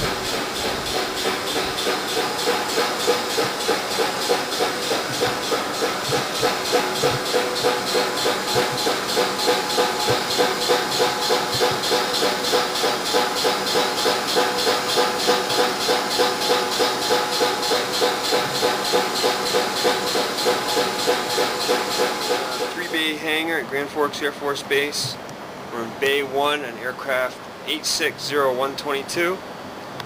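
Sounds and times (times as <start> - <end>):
machine hissing and humming: 0.0 - 23.5.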